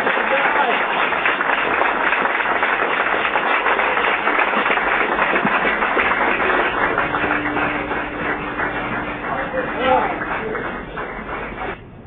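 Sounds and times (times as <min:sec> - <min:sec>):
crowd applauding and cheering: 0:00.0 - 0:11.8
faint steady hum: 0:03.0 - 0:12.0.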